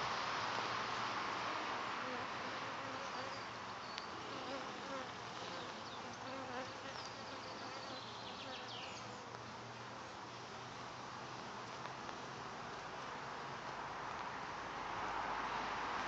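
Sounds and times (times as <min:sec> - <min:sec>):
steady hiss: 0:00.0 - 0:16.0
bees buzzing: 0:04.1 - 0:09.6.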